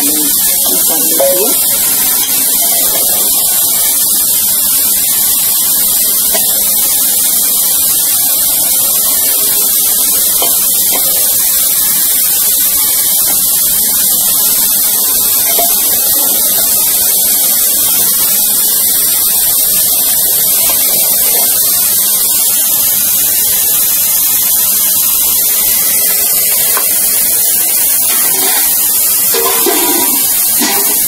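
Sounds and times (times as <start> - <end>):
steady loud hiss: 0.0 - 31.0
metal spatula scraping steel bowl: 29.4 - 31.0.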